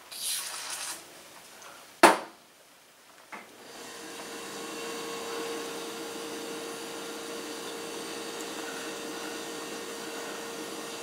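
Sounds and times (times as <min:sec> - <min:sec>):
small motor humming: 0:03.6 - 0:11.0.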